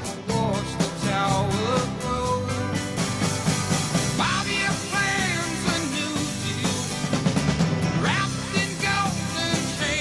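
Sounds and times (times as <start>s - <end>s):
rock song: 0.0s - 10.0s.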